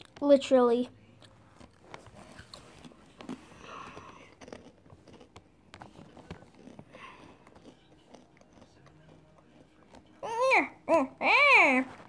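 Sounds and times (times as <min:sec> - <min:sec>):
chewing and crunching snack: 0:01.0 - 0:10.3.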